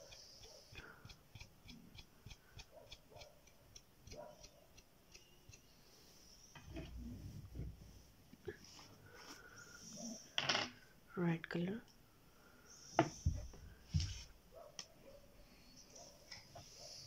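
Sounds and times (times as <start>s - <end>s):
paint pots set on table: 6.4s - 9.4s, 10.0s - 10.9s, 13.0s - 15.0s.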